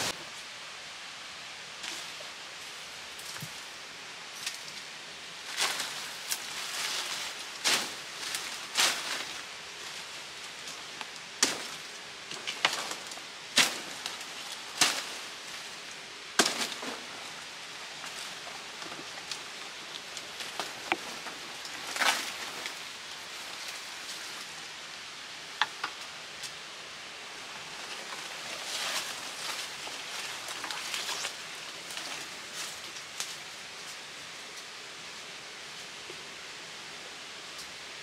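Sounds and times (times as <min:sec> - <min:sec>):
leaves rustling: 0:00.0 - 0:38.0
steady hiss: 0:00.0 - 0:38.0
blade chopping undergrowth: 0:11.4 - 0:15.4, 0:16.4 - 0:17.1.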